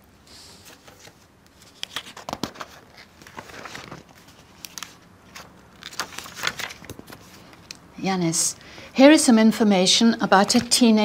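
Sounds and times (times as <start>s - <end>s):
paper rustling: 0.6s - 7.8s.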